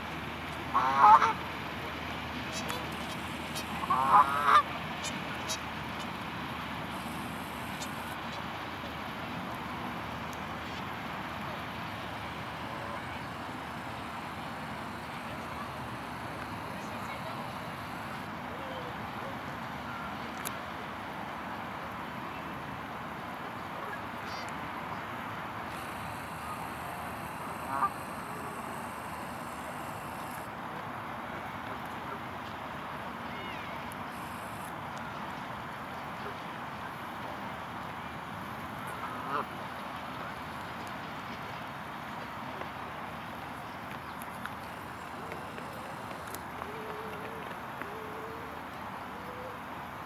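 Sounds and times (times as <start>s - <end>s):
distant traffic hiss and rumble: 0.0s - 50.0s
outdoor background noise: 0.0s - 50.0s
bird call: 25.7s - 30.4s.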